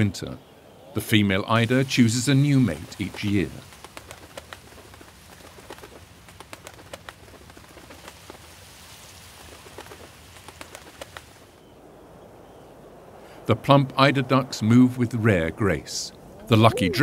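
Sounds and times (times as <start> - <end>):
sea water splashing: 1.4 - 11.5.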